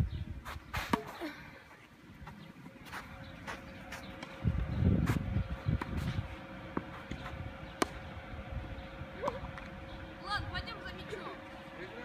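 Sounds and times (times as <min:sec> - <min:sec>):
low rumble on microphone: 0:02.6 - 0:12.0
tennis ball struck with racquets: 0:05.8 - 0:08.1.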